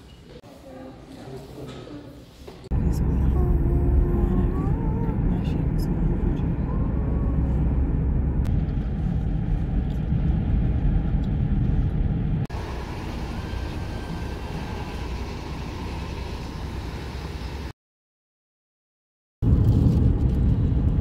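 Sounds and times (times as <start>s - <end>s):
car engine and tyre rumble: 2.8s - 17.7s.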